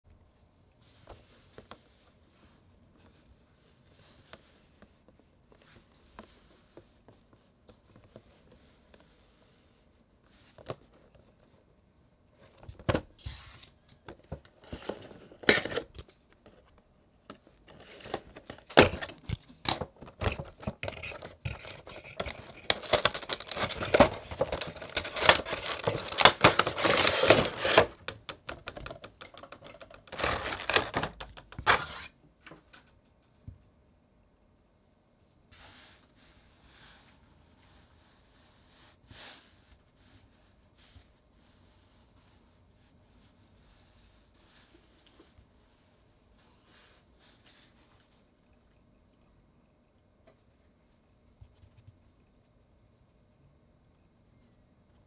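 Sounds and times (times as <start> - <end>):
cardboard and plastic packaging rustling: 12.4 - 32.2.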